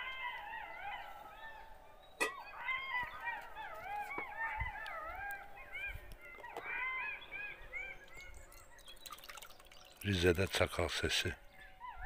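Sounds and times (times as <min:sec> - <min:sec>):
jackals howling: 0:00.0 - 0:08.8, 0:11.4 - 0:12.0.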